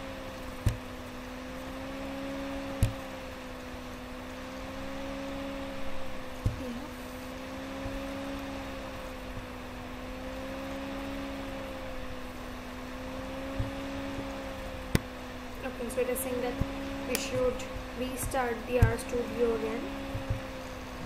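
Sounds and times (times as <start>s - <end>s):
wavering background hum: 0.0s - 21.0s.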